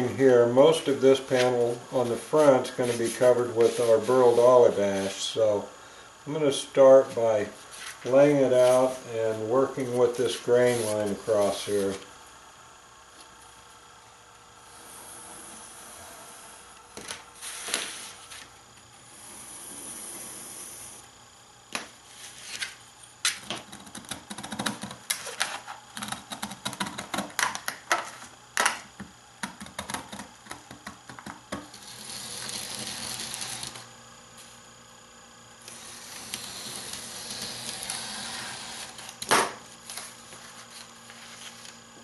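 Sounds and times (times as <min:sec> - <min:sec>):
shears cutting wood veneer: 0:00.6 - 0:05.6, 0:06.8 - 0:12.1, 0:14.7 - 0:18.5, 0:29.8 - 0:34.5, 0:35.6 - 0:41.8
knife scraping along metal straightedge: 0:35.7 - 0:39.1.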